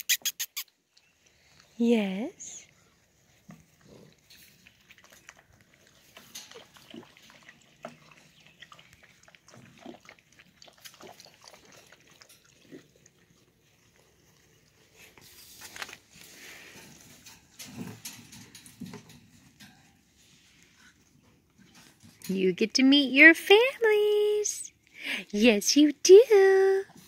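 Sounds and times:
puppies scratching and clicking: 3.2 - 22.4.

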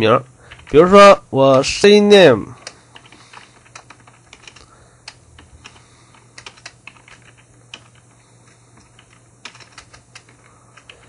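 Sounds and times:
keyboard typing clicks: 2.6 - 8.1, 8.8 - 11.0.

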